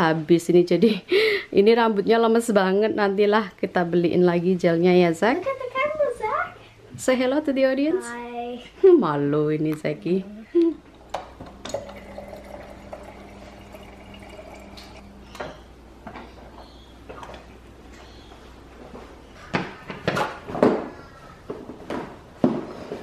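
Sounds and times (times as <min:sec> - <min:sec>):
water dispenser humming: 0:10.9 - 0:16.0
water filling plastic bottle: 0:11.6 - 0:15.3.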